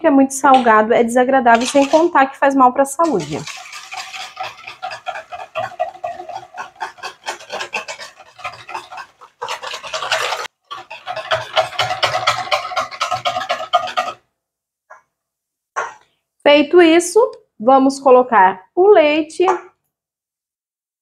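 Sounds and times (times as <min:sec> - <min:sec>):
whisk beating in metal bowl: 0:00.5 - 0:02.3, 0:03.0 - 0:14.3.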